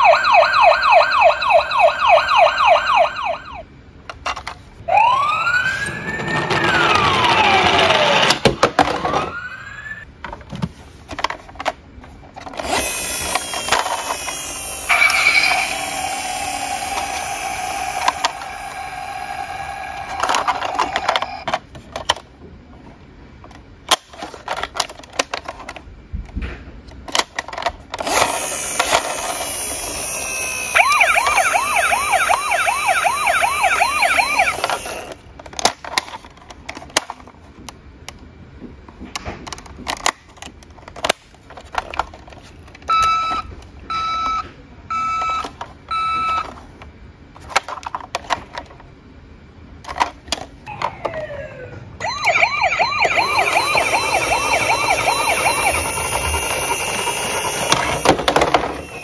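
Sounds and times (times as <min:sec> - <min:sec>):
toy siren wailing and yelping: 0:00.0 - 0:03.6, 0:04.9 - 0:08.3, 0:09.2 - 0:10.0, 0:12.7 - 0:21.5, 0:28.1 - 0:35.2, 0:42.9 - 0:46.5, 0:50.7 - 0:59.0.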